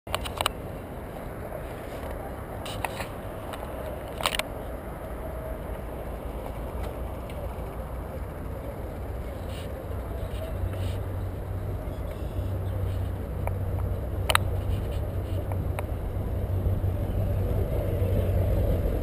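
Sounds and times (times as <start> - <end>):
wind: 0.0 - 19.0
bicycle wheels rumbling: 0.2 - 19.0
bicycle rattles: 1.2 - 16.1.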